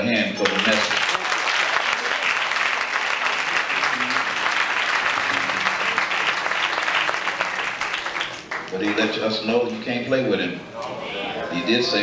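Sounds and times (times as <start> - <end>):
congregation applauding: 0.4 - 9.5.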